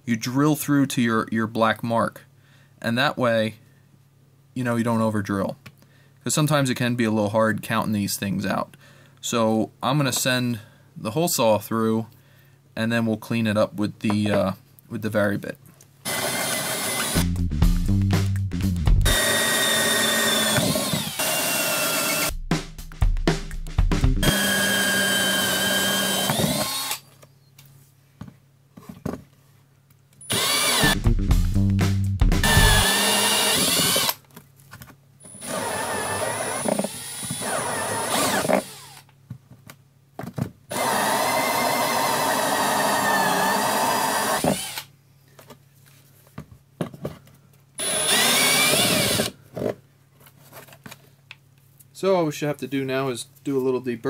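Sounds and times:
cordless drill whining: 0:16.0 - 0:17.3, 0:19.1 - 0:22.3, 0:24.2 - 0:27.1, 0:30.3 - 0:31.0, 0:32.4 - 0:34.2, 0:35.2 - 0:39.1, 0:40.7 - 0:44.9, 0:47.8 - 0:49.4.

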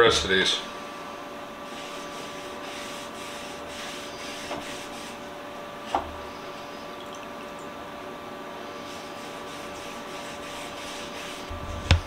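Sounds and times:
steady background hum: 0:00.0 - 0:12.0
cloth rag rubbing on wood: 0:01.6 - 0:05.3, 0:08.8 - 0:12.0.

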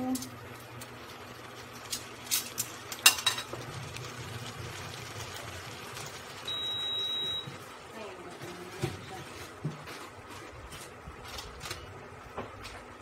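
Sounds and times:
high electronic beep: 0:06.5 - 0:07.5.

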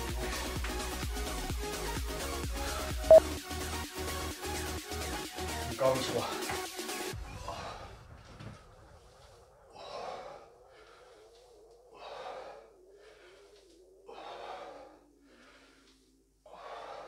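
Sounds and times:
man breathing hard: 0:07.2 - 0:17.0.

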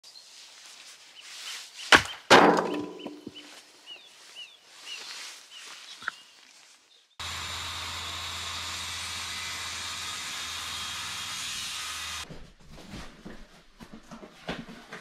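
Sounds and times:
axe splitting log: 0:01.9 - 0:03.2.

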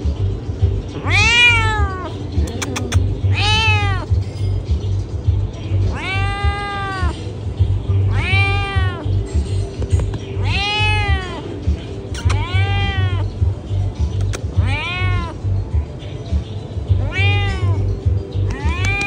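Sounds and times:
cat meowing loudly: 0:01.0 - 0:02.1, 0:03.2 - 0:04.1, 0:05.9 - 0:07.2, 0:08.1 - 0:09.2, 0:10.4 - 0:11.5, 0:12.2 - 0:13.4, 0:14.5 - 0:15.5, 0:17.0 - 0:17.9, 0:18.5 - 0:19.0.

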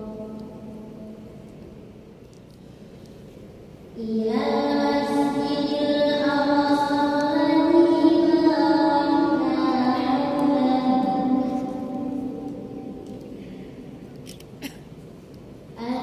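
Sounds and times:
girl reciting melodically: 0:00.0 - 0:01.4, 0:03.9 - 0:14.0, 0:15.8 - 0:16.0.

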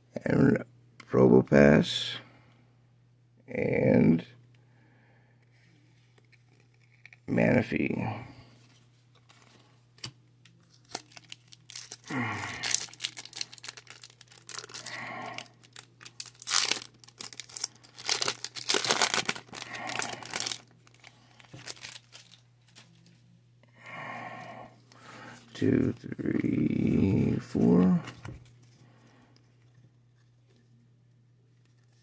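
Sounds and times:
foil wrapper tearing and crinkling: 0:10.6 - 0:22.9.

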